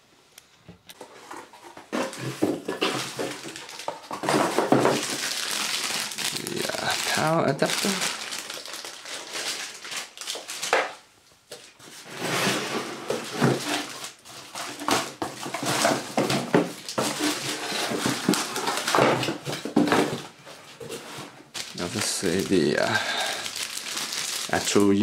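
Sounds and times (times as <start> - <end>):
cardboard rustling and scraping: 1.0 - 7.1, 11.5 - 24.8
plastic wrapping crinkling: 1.9 - 12.0, 13.1 - 25.0.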